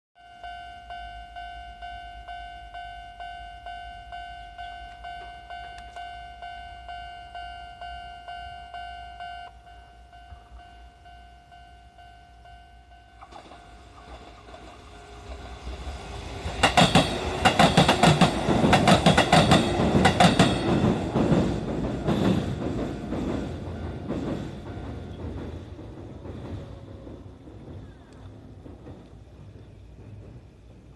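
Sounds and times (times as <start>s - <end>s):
level crossing bell ringing: 0.2s - 13.9s
train wheels clacking over rails: 13.2s - 30.9s.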